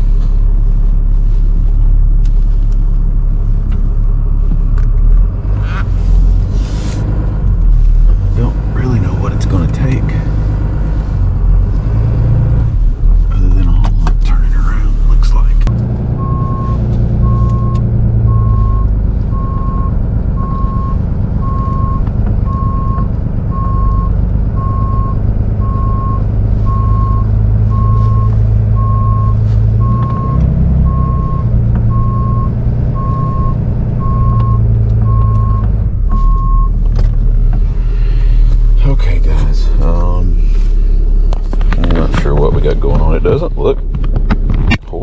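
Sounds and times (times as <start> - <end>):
truck engine running: 0.0 - 45.0
reversing alarm beeping: 16.2 - 36.7.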